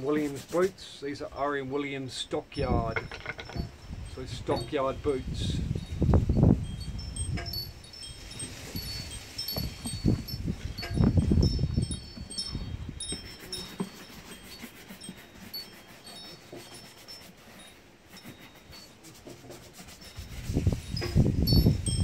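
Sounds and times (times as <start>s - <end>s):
shoe brush rubbing leather: 0.0s - 0.9s, 12.9s - 21.9s
high tinkling notes: 2.5s - 18.9s.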